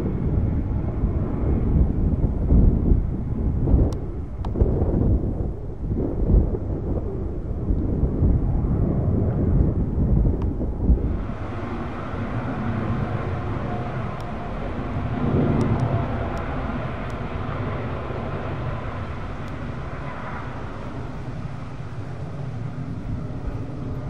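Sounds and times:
distant jet engines rumbling: 0.0 - 24.0.

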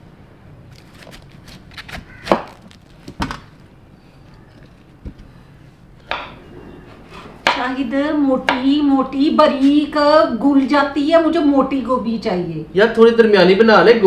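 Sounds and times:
knife cutting cauliflower: 0.7 - 3.3
sharp knocks and cracks: 0.8 - 3.7, 6.1 - 6.4.

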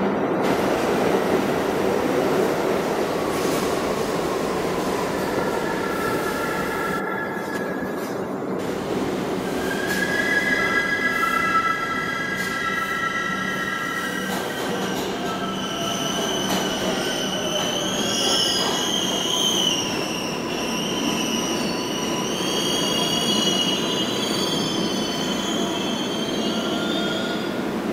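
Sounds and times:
subway train rumbling: 0.0 - 27.9
high-pitched brake squeal: 9.5 - 27.5.

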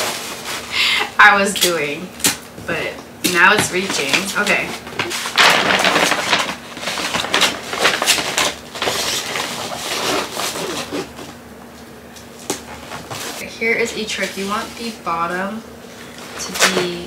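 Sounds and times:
wrapping paper crinkling: 0.0 - 0.8, 3.8 - 11.3.

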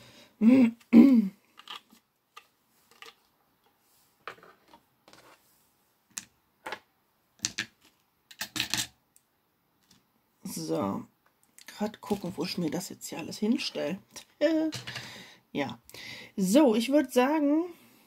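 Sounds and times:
plastic trays and beads clicking: 1.6 - 3.2, 7.4 - 10.1.

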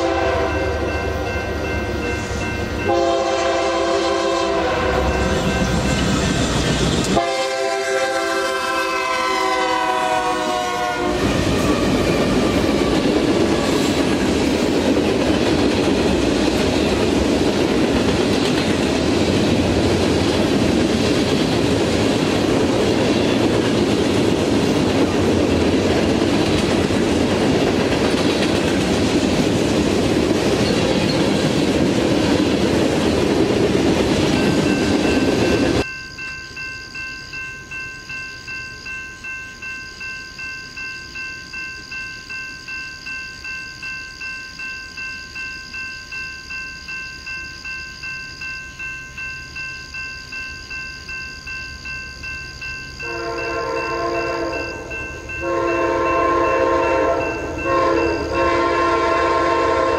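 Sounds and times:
locomotive air horn blowing: 0.0 - 0.8, 2.9 - 5.3, 7.2 - 13.0, 53.0 - 54.6, 55.4 - 59.9
train cars rumbling past: 0.0 - 36.7, 50.8 - 59.9
crossing bell ringing: 0.0 - 59.9.

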